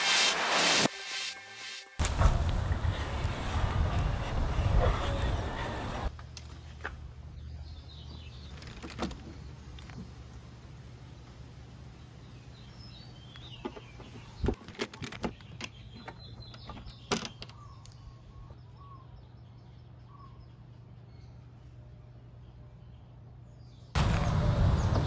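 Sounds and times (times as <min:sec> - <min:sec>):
birds chirping: 0:11.8 - 0:25.0.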